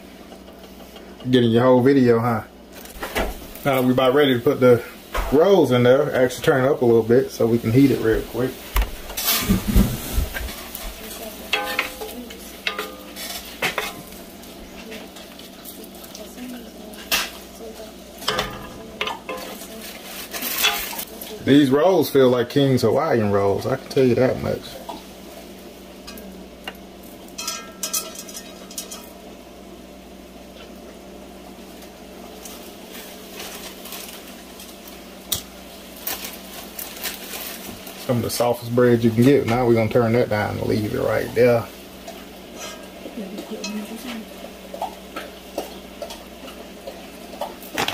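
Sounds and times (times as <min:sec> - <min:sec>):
meat sizzling in butter: 0:02.7 - 0:29.4, 0:30.5 - 0:47.9
pan and utensils clattering: 0:07.6 - 0:21.4, 0:26.0 - 0:29.2, 0:35.3 - 0:47.9.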